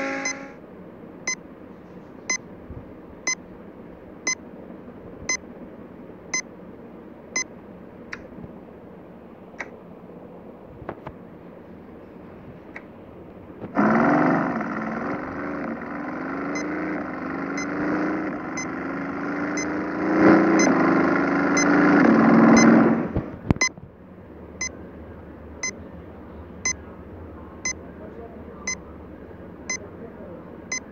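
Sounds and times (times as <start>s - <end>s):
short electronic beeps: 0.0s - 0.6s, 17.5s - 17.8s, 19.6s - 19.8s, 21.5s - 21.8s, 22.6s - 22.8s
simulated engine revving: 0.0s - 0.6s, 13.7s - 23.3s.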